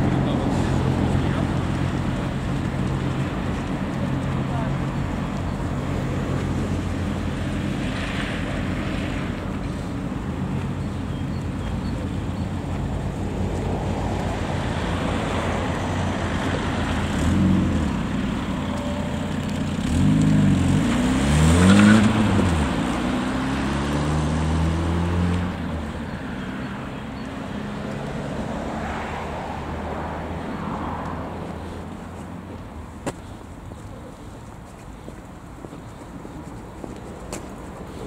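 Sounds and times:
car engine: 0.0s - 38.0s
road noise: 0.0s - 38.0s
engine revving up: 19.8s - 25.6s.

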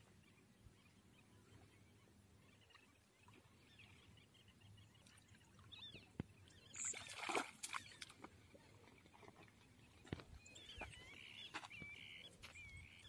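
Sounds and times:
fish splashing in water: 6.8s - 8.3s.

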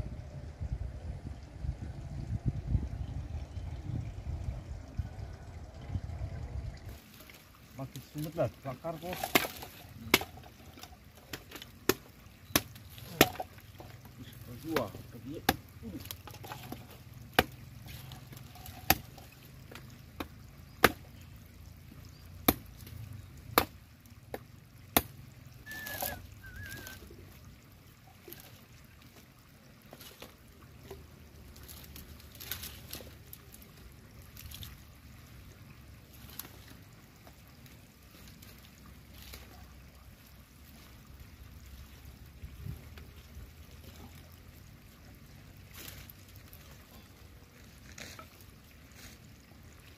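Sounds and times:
trickling water: 0.0s - 49.9s
sticks knocking and rustling: 6.9s - 21.1s, 25.7s - 27.0s, 29.9s - 34.8s, 36.1s - 37.4s, 47.6s - 49.3s
machete chopping dry wood: 9.1s - 10.5s, 11.2s - 13.5s, 14.6s - 21.1s, 22.4s - 24.4s, 25.0s - 25.2s.

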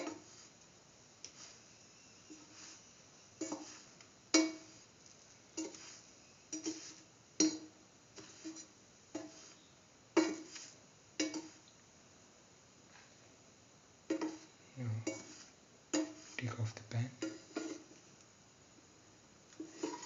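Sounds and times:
utensil clinking on metal frying pan: 4.3s - 4.7s, 6.5s - 7.7s, 11.2s - 11.6s, 15.0s - 16.3s.

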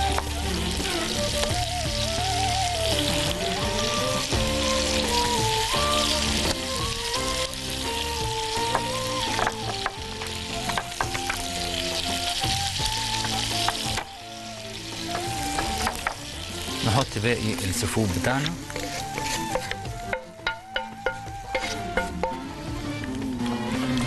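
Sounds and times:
background music: 0.0s - 24.0s
frying pan sizzling: 0.0s - 24.0s
utensil tapping cookware: 19.5s - 22.4s.

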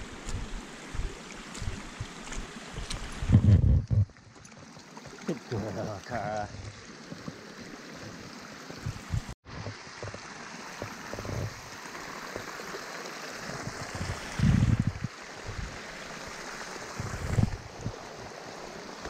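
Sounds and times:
rainwater trickling stream: 0.0s - 19.0s.

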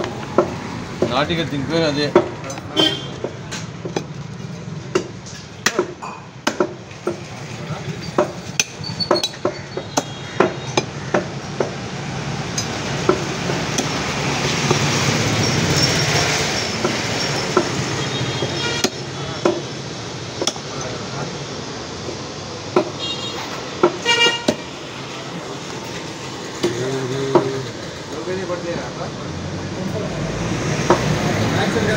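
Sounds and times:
vehicle horn toot: 2.7s - 3.2s, 17.9s - 19.1s, 23.0s - 24.6s
cleaver chopping on wooden block: 4.9s - 7.3s, 8.2s - 11.8s, 18.4s - 19.7s, 20.4s - 20.7s
vehicle passing: 11.3s - 31.9s.

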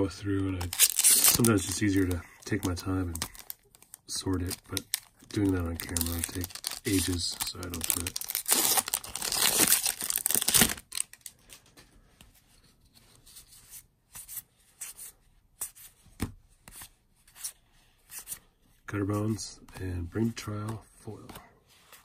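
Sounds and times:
foil wrapper crinkling and tearing: 0.6s - 11.5s.

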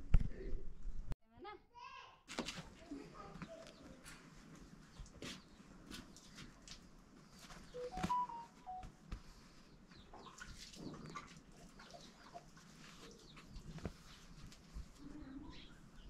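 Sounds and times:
clear tones stepping in pitch: 7.8s - 8.9s.

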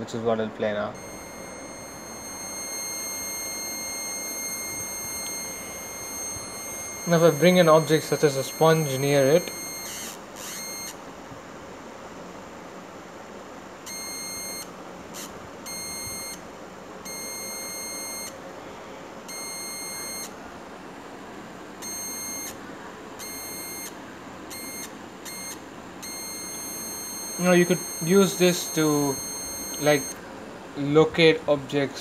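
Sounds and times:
high-pitched buzzy electronic tone: 1.0s - 11.0s, 13.9s - 16.4s, 23.2s - 30.2s.

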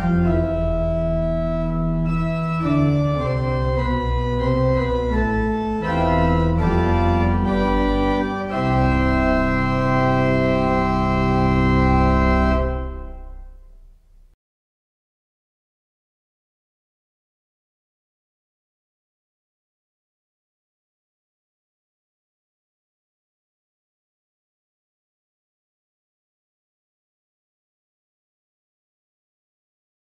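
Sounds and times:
church organ chords: 0.0s - 14.3s.

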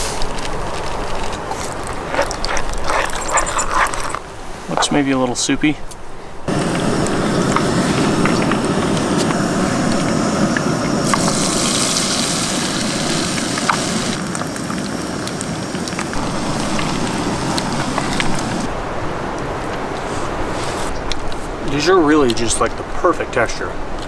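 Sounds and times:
oil crackles and pops: 0.0s - 4.2s, 6.5s - 18.7s
fish deep-frying in oil sizzling: 6.5s - 18.7s.

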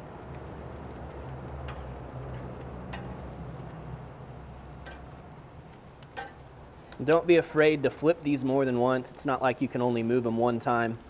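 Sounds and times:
chicken wings sizzling on grill: 0.0s - 11.0s
metal tongs clicking: 1.7s - 3.2s.

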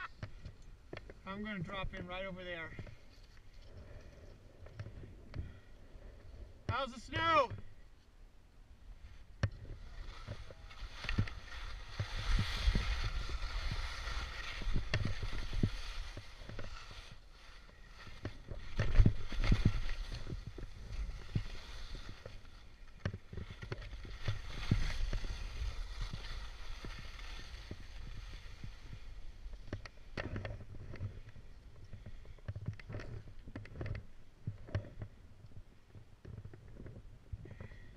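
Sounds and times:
wind rumble on microphone: 8.9s - 37.9s
skis scraping on snow: 9.1s - 32.2s.

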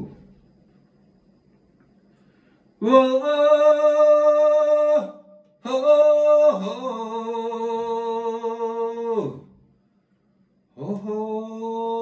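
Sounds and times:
man singing held calls: 2.8s - 9.5s, 10.8s - 12.0s.

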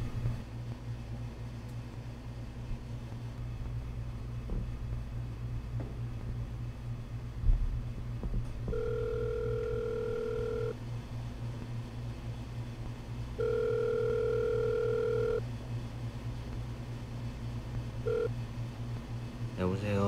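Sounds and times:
steady low hum: 0.0s - 20.0s
telephone ringback tone: 8.7s - 10.8s, 13.4s - 15.4s, 18.0s - 18.3s.

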